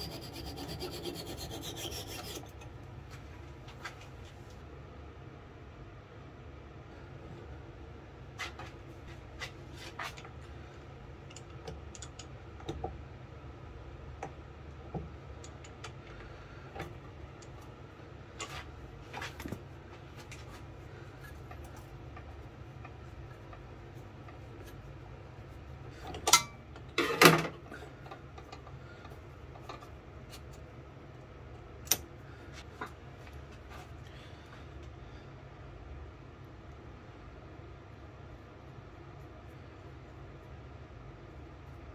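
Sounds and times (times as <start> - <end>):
low steady hum: 0.0 - 41.9
metal clicks and knocks on lathe: 11.3 - 13.0.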